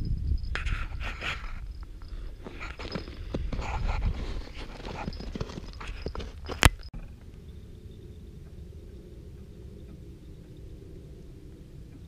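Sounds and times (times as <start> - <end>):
steady hum: 6.0 - 12.0.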